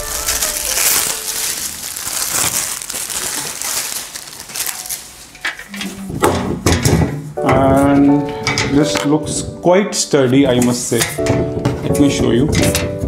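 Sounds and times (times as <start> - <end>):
packaging crinkling and rustling: 0.0 - 6.0.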